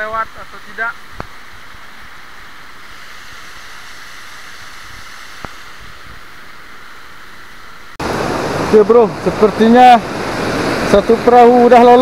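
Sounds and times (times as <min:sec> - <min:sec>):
river rapids rushing over rocks: 0:08.0 - 0:12.0.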